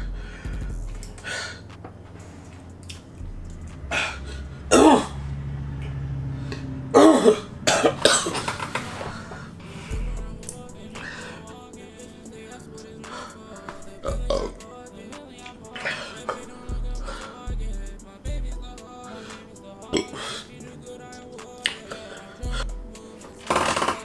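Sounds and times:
man coughing: 3.9 - 5.2, 6.9 - 8.6.

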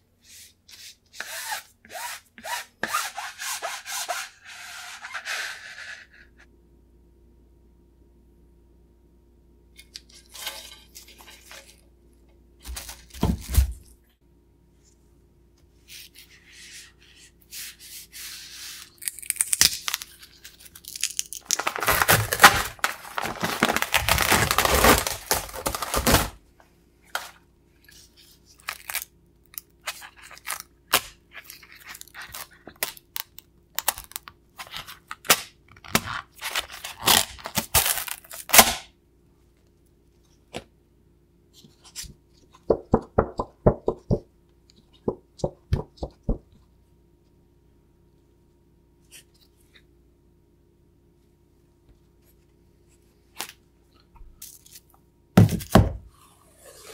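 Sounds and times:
fabric and film crinkling: 19.0 - 26.4.

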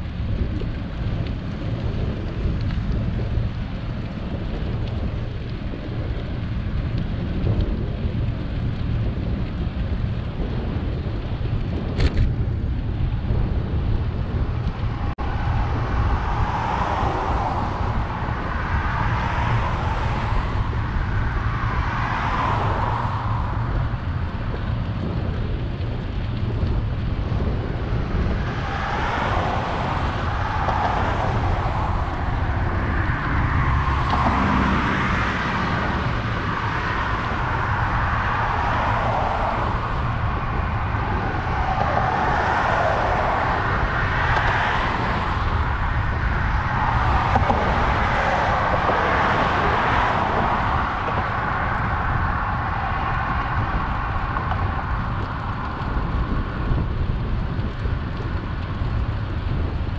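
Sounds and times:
wind rumble on microphone: 0.0 - 59.9
cars passing: 13.1 - 59.9.

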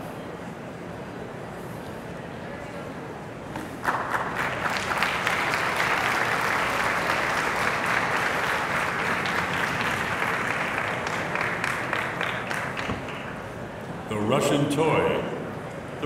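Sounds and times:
audience applauding: 3.8 - 13.5.

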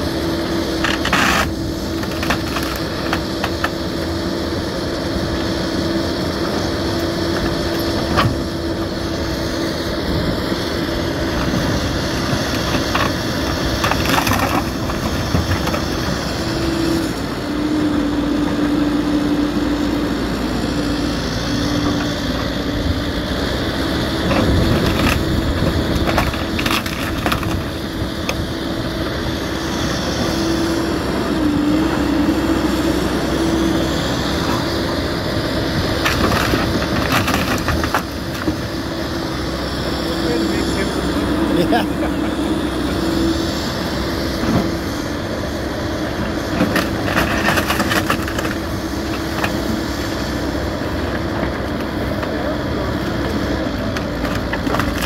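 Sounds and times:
excavator engine droning: 0.0 - 55.0
sharp cracks and crunches: 0.8 - 3.8, 11.3 - 16.3, 24.3 - 28.5, 35.8 - 38.8, 46.6 - 49.7, 53.9 - 55.0.

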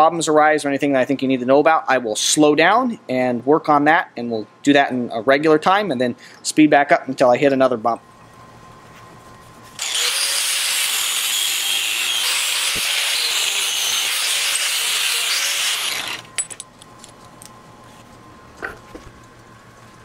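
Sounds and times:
angle grinder cutting steel pipe: 9.8 - 16.3.

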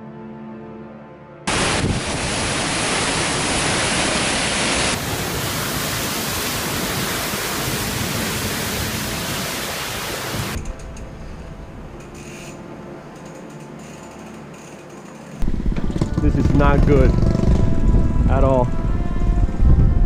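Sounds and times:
wind rumble on microphone: 1.5 - 3.1, 4.9 - 11.6, 15.4 - 20.0
driving rain: 1.5 - 10.6
hurricane-force wind: 1.5 - 12.0, 15.4 - 20.0.

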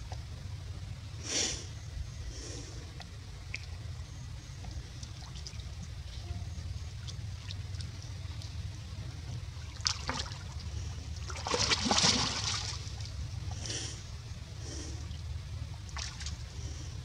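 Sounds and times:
monkey splashing in water: 9.6 - 13.2, 15.8 - 16.6.

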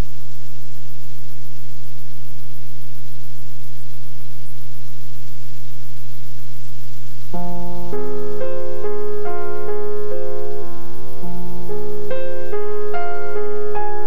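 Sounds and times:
steady hum with hiss: 0.0 - 14.0
piano notes: 7.4 - 14.0.

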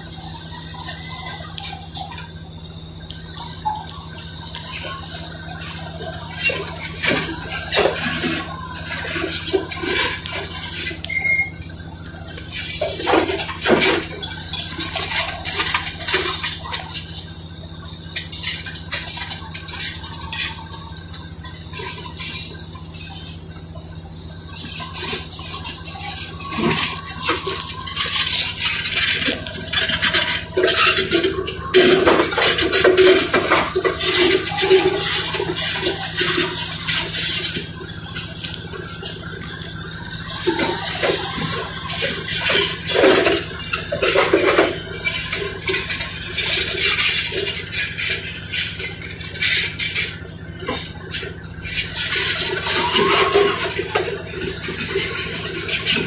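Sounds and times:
diesel engine humming: 0.0 - 56.0
steel track links clanking: 0.0 - 56.0
concrete cracking and scraping: 24.2 - 56.0.

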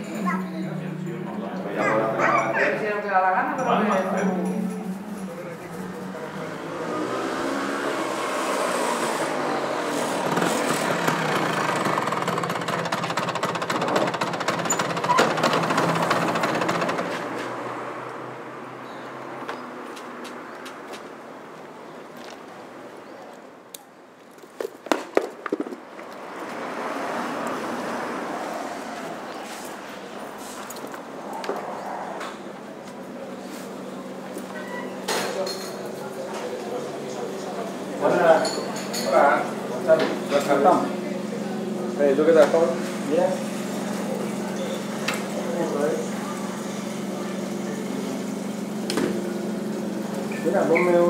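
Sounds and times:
street traffic: 0.0 - 51.0
motor scooter passing: 3.8 - 20.0, 25.5 - 34.3, 36.5 - 51.0
scooter engine puttering: 9.3 - 17.7
sharp clicks and knocks: 12.0 - 17.4.

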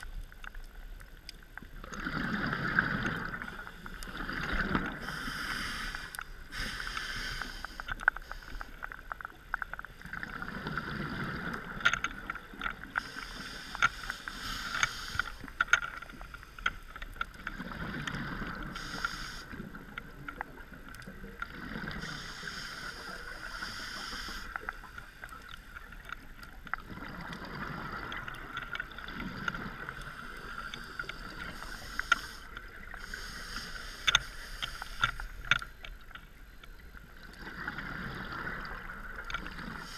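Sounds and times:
exhaled bubbles rumbling: 1.7 - 5.2, 25.8 - 30.5
regulator inhale hiss: 5.0 - 8.8, 13.0 - 15.6, 18.6 - 19.7, 21.8 - 25.2, 30.0 - 35.5.

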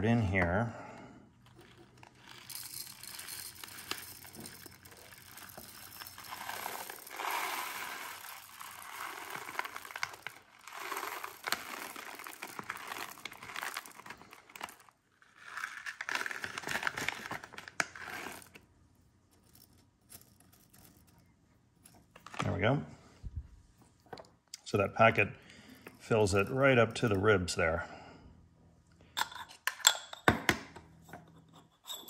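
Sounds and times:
peppercorns rattling into mill: 1.5 - 18.6
plastic packet crinkling: 1.6 - 18.6.

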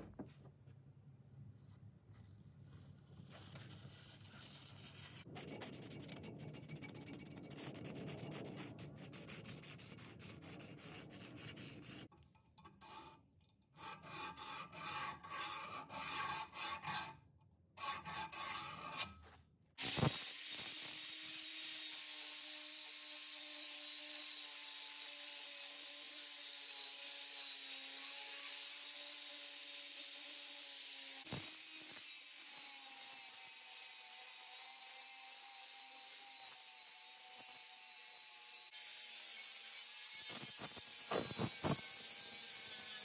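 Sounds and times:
steel rasping by hand: 2.7 - 12.1, 12.7 - 13.2, 13.8 - 17.2, 17.8 - 19.2, 26.2 - 43.0
angle grinder grinding steel: 19.8 - 43.0.

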